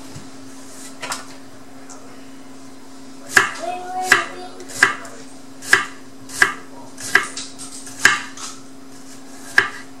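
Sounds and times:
knife chopping on wooden board: 3.3s - 8.5s, 9.4s - 9.9s.

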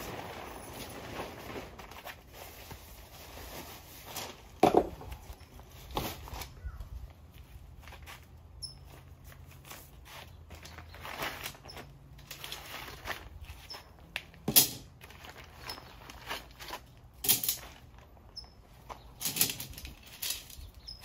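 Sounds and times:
nylon tent fabric rustling: 0.0s - 4.6s, 9.0s - 14.0s.

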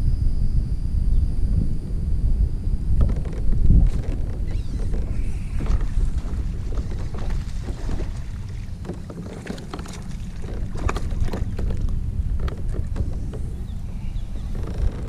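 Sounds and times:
wind rumble on microphone: 0.0s - 15.0s
light knocks against hull: 3.0s - 15.0s
water splashes: 3.8s - 13.1s.

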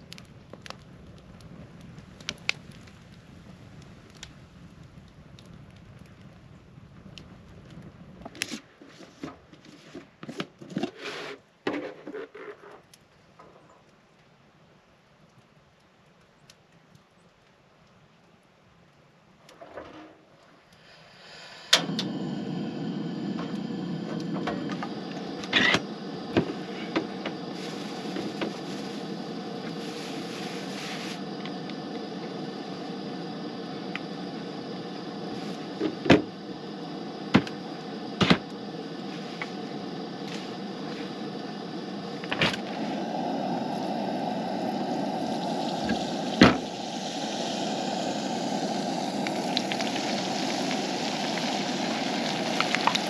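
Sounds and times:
camp stove burner running: 20.6s - 53.0s
hot oil sizzling: 20.6s - 53.0s.

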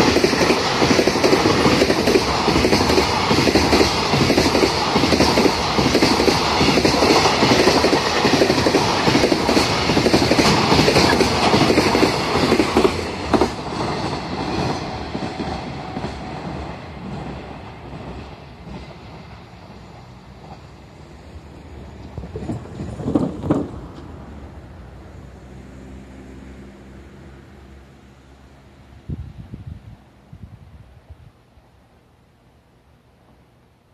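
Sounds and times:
freight train wheels clicking on rail joints: 0.0s - 21.0s, 21.8s - 24.3s.

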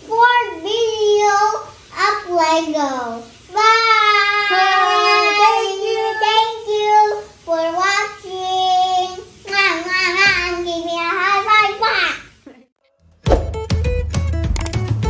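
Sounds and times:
children singing: 3.8s - 7.3s.

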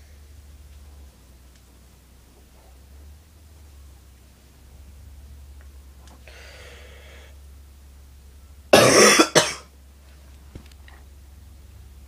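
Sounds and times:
person coughing: 8.8s - 9.7s.

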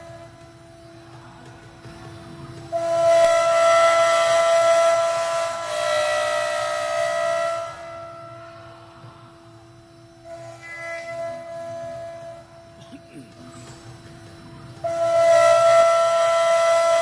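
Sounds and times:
router spindle whining: 9.9s - 17.0s.

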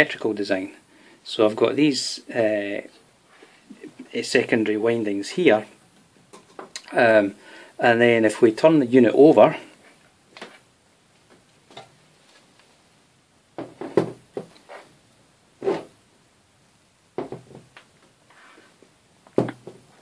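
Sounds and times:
metal knocking and scraping on wood: 13.6s - 14.6s, 17.2s - 17.7s.

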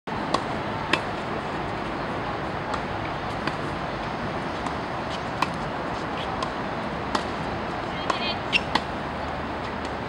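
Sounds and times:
steady background noise: 0.1s - 10.0s
tennis ball struck with racket: 0.3s - 1.1s, 5.4s - 5.6s, 6.3s - 7.4s, 8.0s - 8.9s.

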